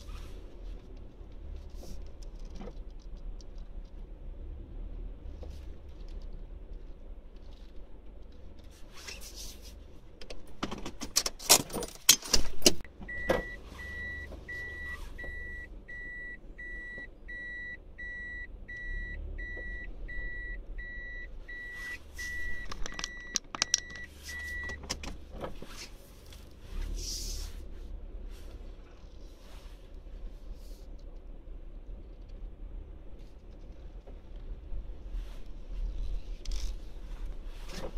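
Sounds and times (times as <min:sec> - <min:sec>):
engine and road rumble: 0:00.0 - 0:37.9
car warning beeper beeping: 0:13.1 - 0:24.8.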